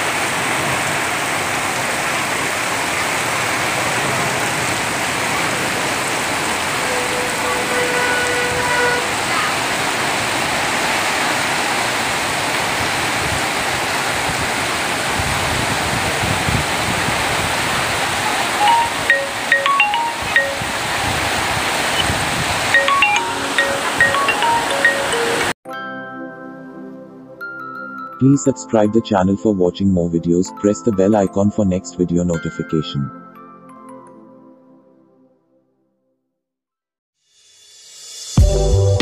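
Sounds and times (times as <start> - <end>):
heavy rain on road: 0.0 - 25.5
chime-like musical notes: 18.6 - 20.8, 22.7 - 29.5, 30.4 - 35.2.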